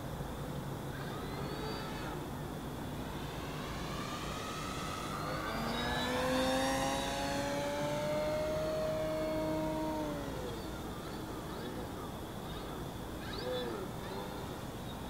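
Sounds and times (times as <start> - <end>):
model plane motor whining: 0.8 - 12.0.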